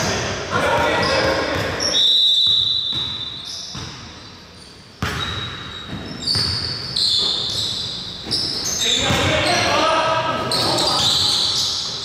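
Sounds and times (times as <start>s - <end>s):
sneakers squeaking on floor: 0.6s - 12.0s
basketball bouncing: 0.7s - 1.8s, 2.9s - 4.1s, 5.0s - 7.6s, 8.2s - 9.4s.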